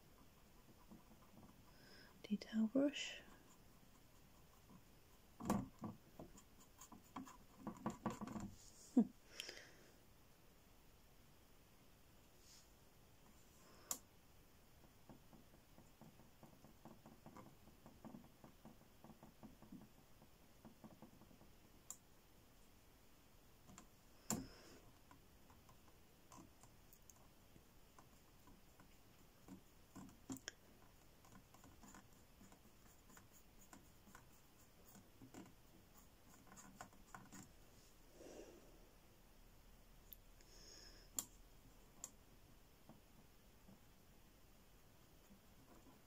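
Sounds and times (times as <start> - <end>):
brush stroking paint on board: 0.0 - 9.0, 12.3 - 13.6, 24.6 - 38.0, 45.0 - 46.0.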